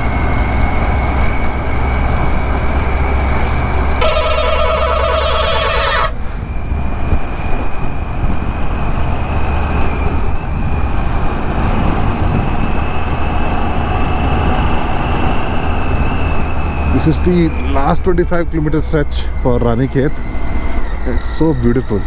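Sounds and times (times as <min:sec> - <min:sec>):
motorcycle engine cruising: 0:00.0 - 0:22.0
wind rushing on microphone: 0:05.3 - 0:18.1.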